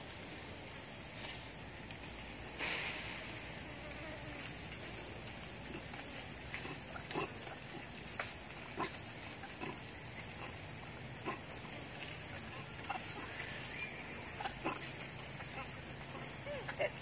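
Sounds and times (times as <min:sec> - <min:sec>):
monkeys grunting: 0:05.6 - 0:17.0.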